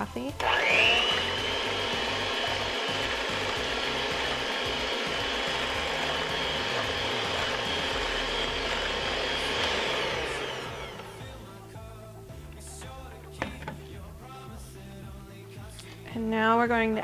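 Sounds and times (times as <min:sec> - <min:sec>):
electric hand mixer whipping: 0:00.3 - 0:11.5.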